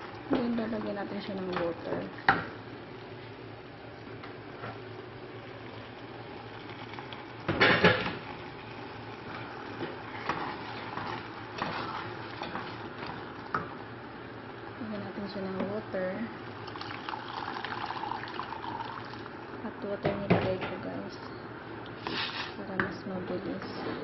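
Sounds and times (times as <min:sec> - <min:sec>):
sauce simmering in a pot: 0:00.0 - 0:15.7, 0:16.3 - 0:19.6
wooden spoon stirring and scraping: 0:09.2 - 0:13.4, 0:22.0 - 0:22.6.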